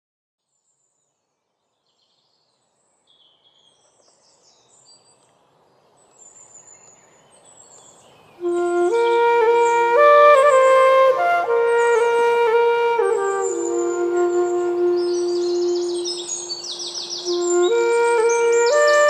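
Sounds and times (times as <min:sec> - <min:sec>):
soft outdoor hiss: 0:00.4 - 0:19.0
birds chirping: 0:01.8 - 0:19.0
flute playing: 0:08.4 - 0:19.0.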